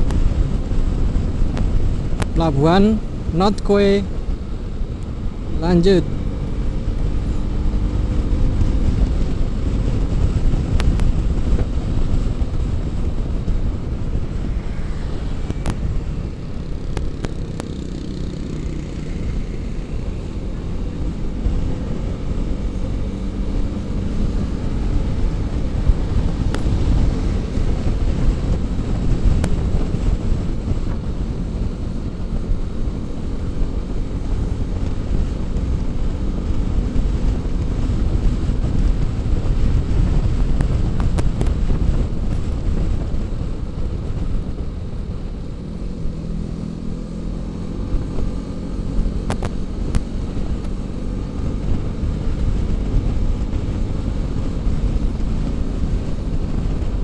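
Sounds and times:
tyres on road: 0.0 - 57.0
wind on microphone: 0.0 - 57.0
scooter engine running: 14.2 - 29.7.

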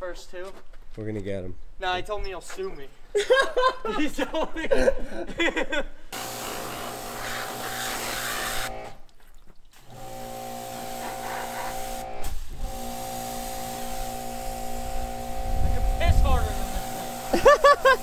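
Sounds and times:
water spray hissing: 6.2 - 8.8, 9.7 - 18.0
pressure washer motor hum: 6.2 - 9.0, 9.8 - 18.0.

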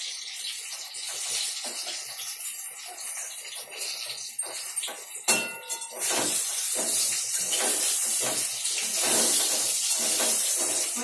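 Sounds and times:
eggplant sizzling in hot oil: 0.0 - 11.0
utensil clinking against pan: 4.4 - 11.0.

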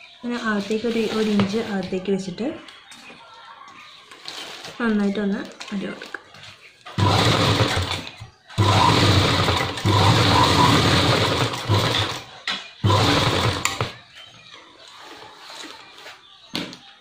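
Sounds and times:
sewing machine stitching cloth: 7.0 - 14.0.

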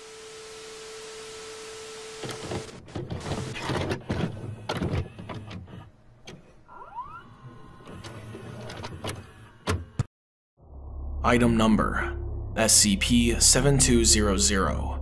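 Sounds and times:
television static hiss: 0.0 - 2.7
vcr motor whir: 0.0 - 9.9
steady tone: 10.6 - 15.0.

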